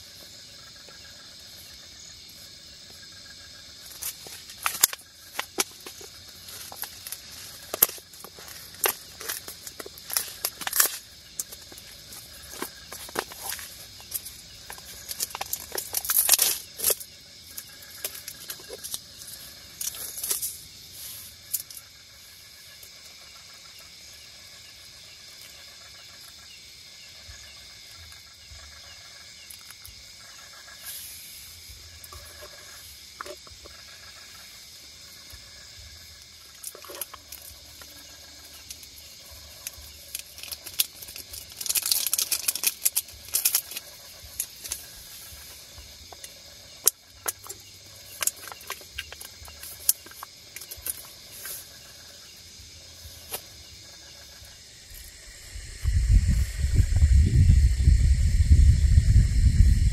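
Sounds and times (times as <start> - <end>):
crickets chirping: 0.0 - 59.9
plastic packet crinkling: 40.4 - 43.8.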